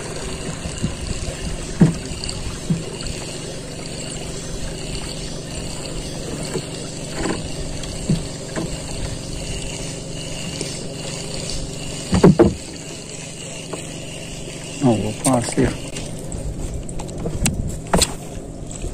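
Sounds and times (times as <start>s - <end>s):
steady low hum: 0.0s - 18.9s
water lapping against boat hull: 0.0s - 18.9s.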